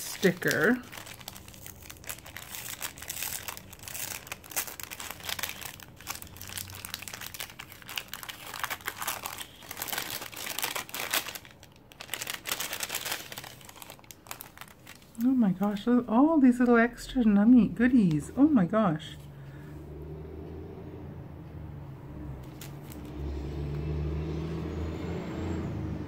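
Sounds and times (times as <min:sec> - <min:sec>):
paper envelope crinkling: 0:00.0 - 0:15.9, 0:22.4 - 0:23.2.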